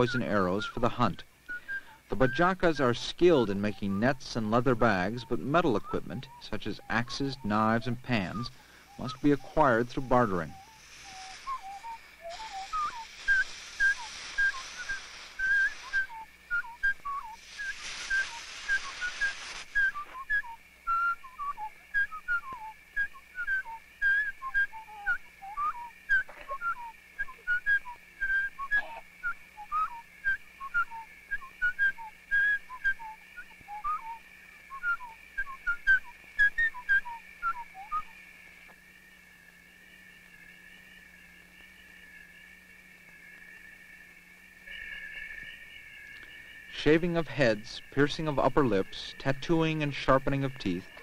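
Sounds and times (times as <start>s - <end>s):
hiss: 0.0s - 38.2s
whistled bird calls: 0.0s - 38.3s
steady high tone: 2.1s - 31.8s.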